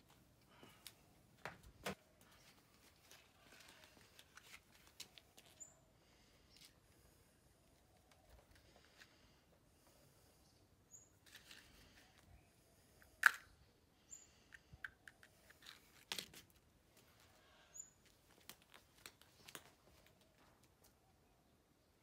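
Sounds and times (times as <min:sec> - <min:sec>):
packaging rustling and crinkling: 0:02.4 - 0:05.6.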